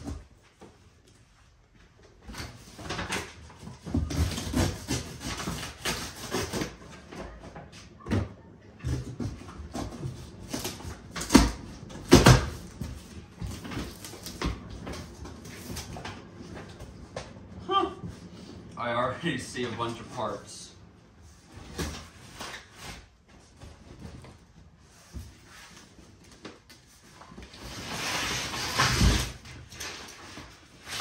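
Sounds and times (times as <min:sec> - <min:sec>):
cardboard packaging scraping and rustling: 0:02.4 - 0:07.1, 0:09.2 - 0:16.2, 0:26.9 - 0:31.0.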